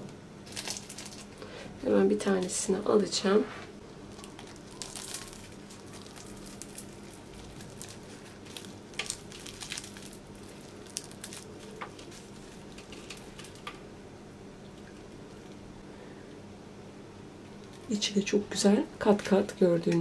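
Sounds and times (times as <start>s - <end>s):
flaky pastry crackling as torn: 0.4s - 1.4s, 4.0s - 13.8s.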